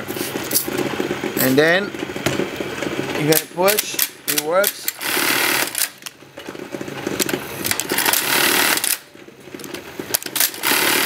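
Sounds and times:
industrial sewing machine clattering: 0.4 - 6.1, 7.4 - 9.2, 9.9 - 11.0.

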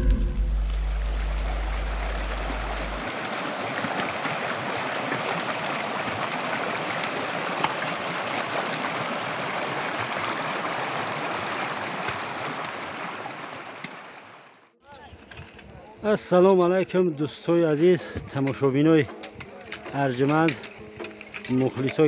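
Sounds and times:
deep low boom: 0.0 - 3.0
stream rushing over stones: 0.5 - 14.6.

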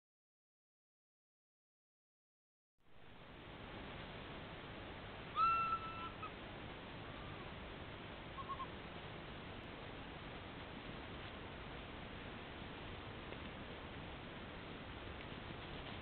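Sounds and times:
background hiss: 2.8 - 16.0
faint short animal calls: 5.3 - 6.4, 7.0 - 7.6, 8.3 - 8.8
animal pup whining: 5.4 - 6.4, 7.0 - 7.5, 8.3 - 8.8.

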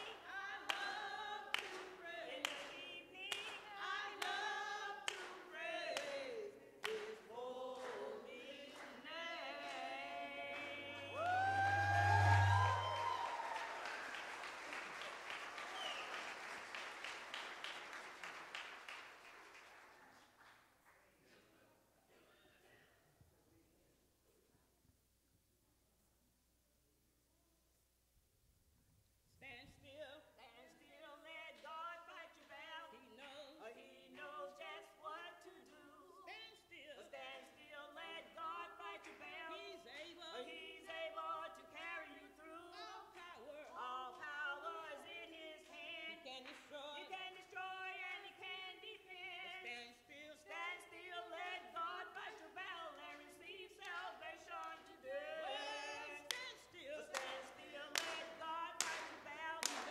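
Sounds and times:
hand-clapping: 0.0 - 9.0, 9.6 - 21.1, 46.4 - 46.8, 53.0 - 54.9, 56.3 - 59.9
women singing a hymn: 0.0 - 14.2, 29.4 - 59.9.

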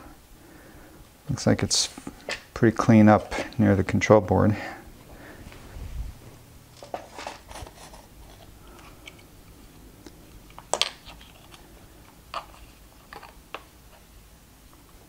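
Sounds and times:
small clicks and rustles of handling: 6.8 - 14.1.

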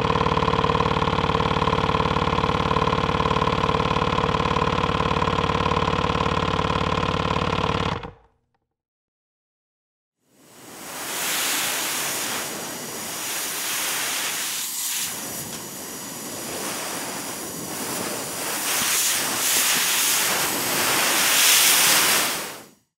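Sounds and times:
compressed air hissing: 10.4 - 22.8.

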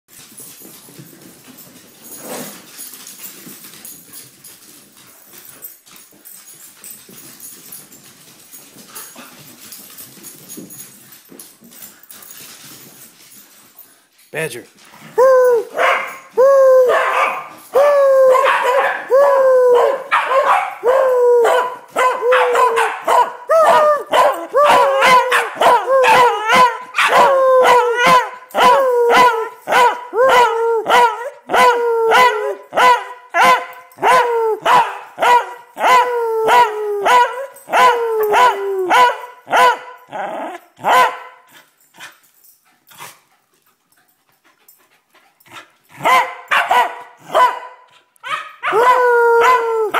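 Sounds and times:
dog barking: 15.8 - 16.2, 16.9 - 17.5, 18.3 - 19.1, 19.8 - 40.0, 40.8 - 41.4, 46.0 - 49.6.

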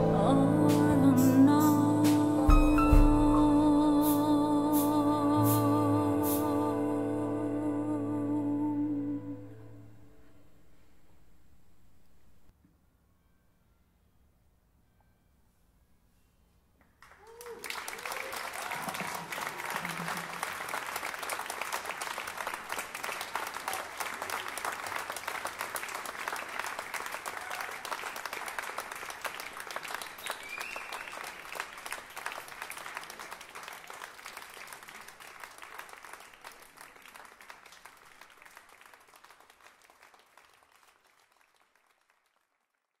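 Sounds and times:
audience applauding: 17.0 - 42.9.

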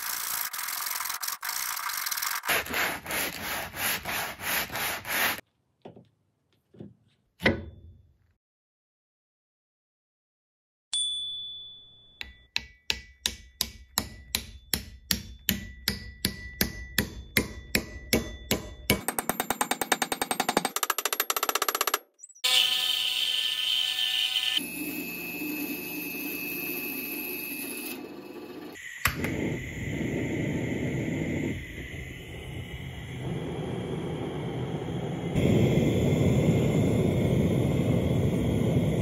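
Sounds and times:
band saw cutting wood: 0.0 - 5.4, 22.4 - 28.8
hammer striking wooden wedge: 12.2 - 22.0.

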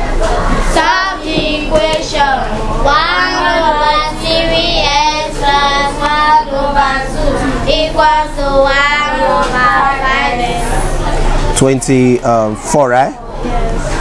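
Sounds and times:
children chanting in unison: 0.7 - 10.9.

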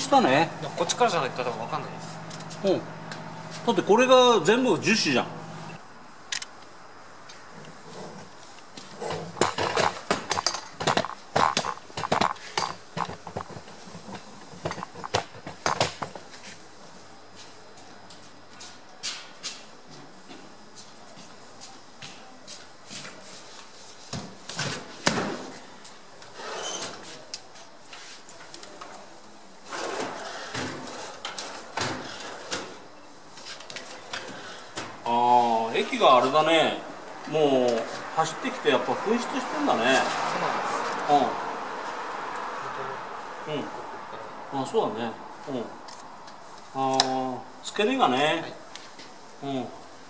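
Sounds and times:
hard objects clattering: 9.0 - 16.2.

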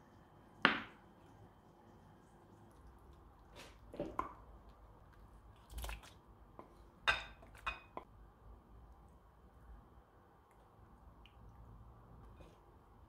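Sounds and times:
soft wet scoops of food: 1.1 - 12.9.

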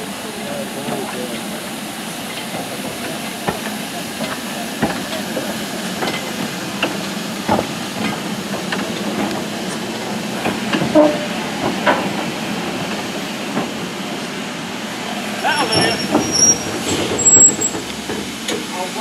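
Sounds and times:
hiss of steam: 0.0 - 19.0
wheels knocking: 15.4 - 19.0.

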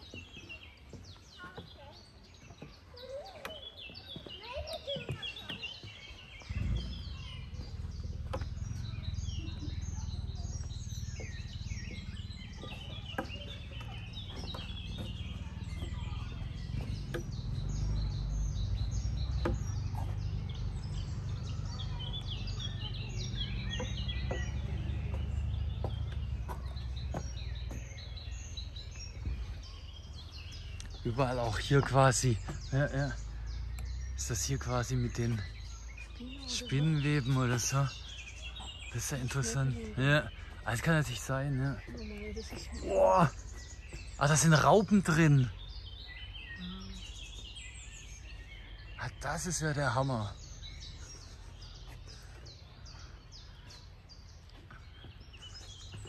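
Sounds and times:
songbirds chirping and singing: 0.0 - 56.0
steady low rumble: 6.3 - 44.2.

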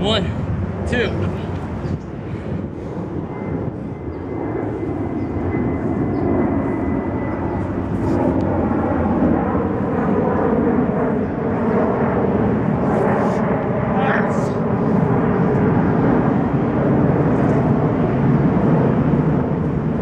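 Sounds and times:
engine drone with held tones: 0.0 - 20.0.

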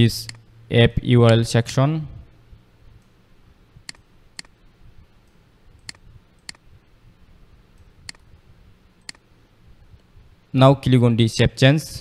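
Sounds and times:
computer mouse clicking: 5.2 - 6.6, 7.8 - 8.2, 9.0 - 9.2.

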